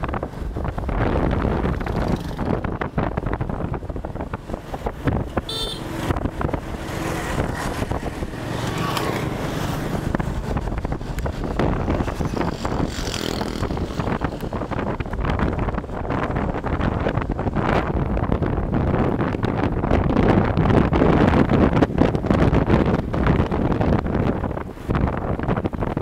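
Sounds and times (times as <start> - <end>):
road traffic: 0.0 - 26.0
wind rumbling on microphone: 0.0 - 26.0
horn toot: 5.5 - 6.0.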